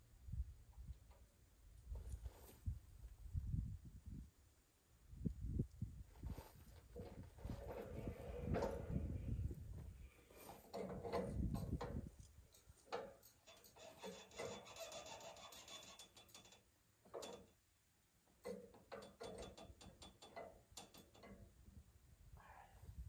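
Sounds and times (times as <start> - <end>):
faint clicks and knocks: 18.3 - 21.8.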